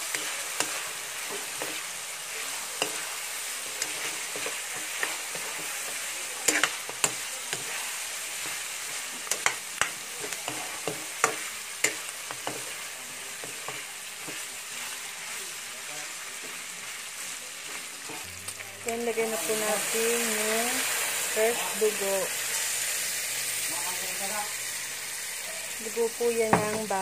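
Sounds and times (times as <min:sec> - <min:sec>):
spatula scraping and knocking pan: 0:00.0 - 0:12.8, 0:26.5 - 0:27.0
pork sizzling in a pan: 0:00.0 - 0:27.0.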